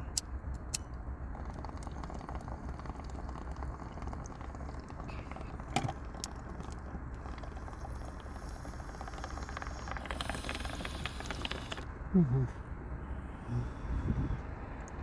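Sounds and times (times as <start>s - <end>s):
water bong bubbling: 1.3s - 11.9s.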